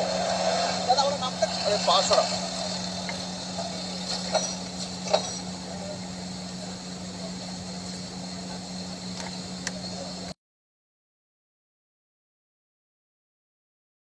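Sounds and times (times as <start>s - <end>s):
low electrical hum: 0.0s - 10.4s
street background noise: 0.0s - 10.4s.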